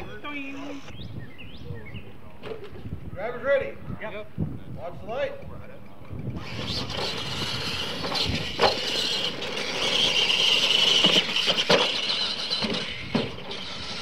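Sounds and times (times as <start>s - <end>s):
rc truck motor whine: 6.3s - 14.0s.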